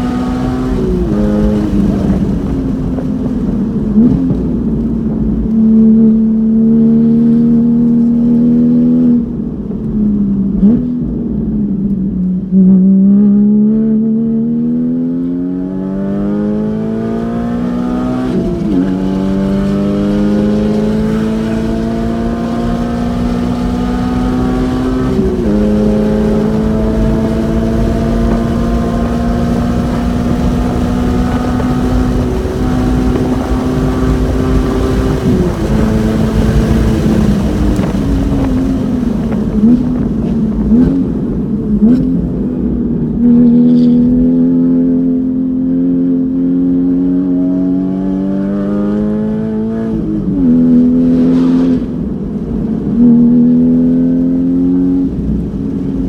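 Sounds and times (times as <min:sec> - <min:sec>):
racing car engine revving: 0:12.6 - 0:55.6.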